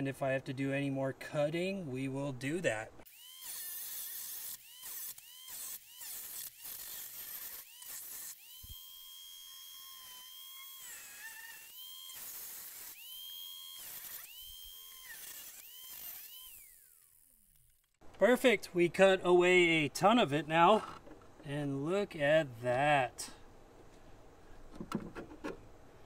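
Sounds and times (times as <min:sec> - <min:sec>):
angle grinder cutting sheet metal: 0:03.1 - 0:17.2.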